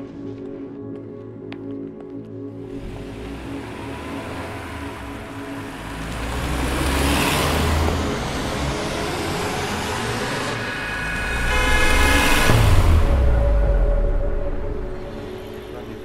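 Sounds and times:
car engine and road noise: 2.4s - 16.0s
low rumble: 2.8s - 16.0s
car horn: 7.5s - 15.7s.

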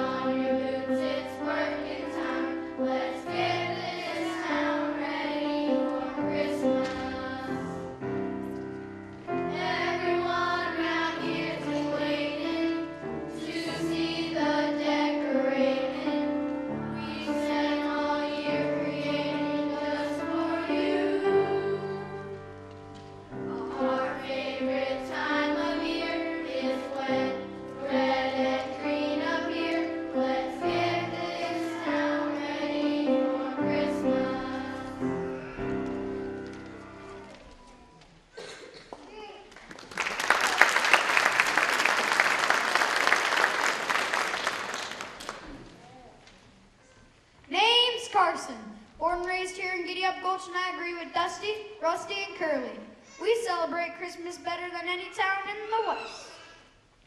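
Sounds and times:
children singing: 0.0s - 8.0s, 9.3s - 22.5s, 23.4s - 36.3s.

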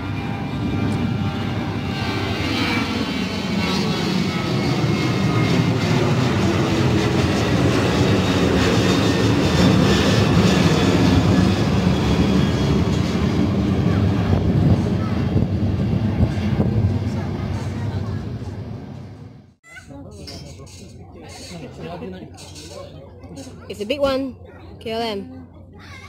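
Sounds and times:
jet engines rumbling overhead: 0.0s - 19.6s.

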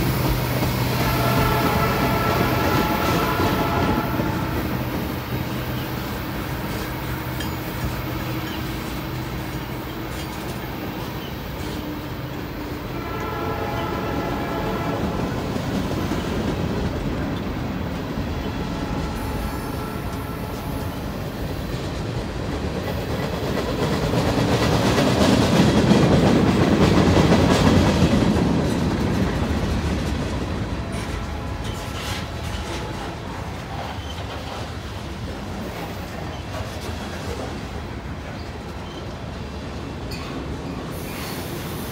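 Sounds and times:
freight train wheels rumbling: 0.0s - 41.9s
multi-pitch horn tone: 0.9s - 4.9s, 13.0s - 15.4s, 18.5s - 21.1s.

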